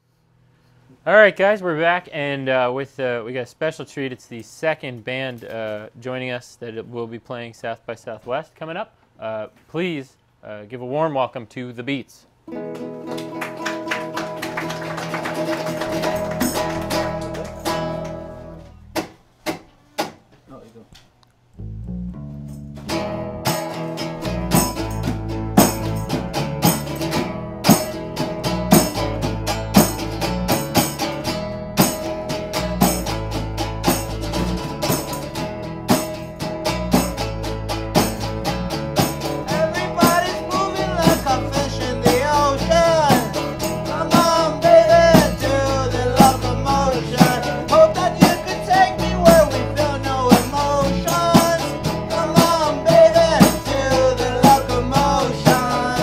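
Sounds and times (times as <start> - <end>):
strummed acoustic guitar: 12.5 - 20.1, 21.9 - 56.0
electric bass: 15.3 - 19.0, 21.6 - 56.0
simple drum beat: 23.5 - 56.0
person singing: 39.4 - 56.0.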